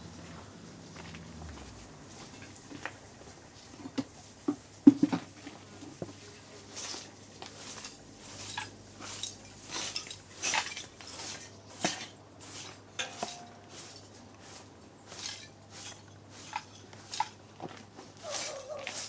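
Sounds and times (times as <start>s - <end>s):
hard objects clattering: 6.7s - 14.1s.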